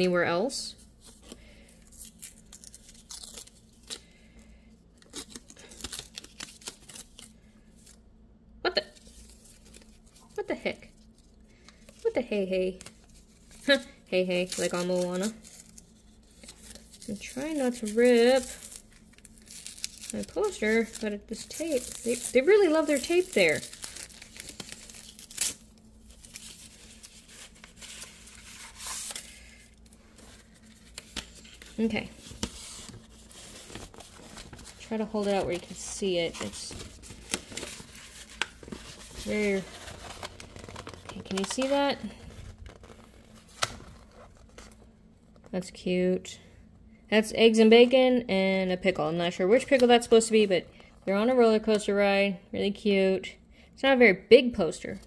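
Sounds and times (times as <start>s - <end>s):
paper crackling: 5.0s - 8.0s, 8.9s - 44.8s
tape peeling off paper: 14.4s - 41.8s.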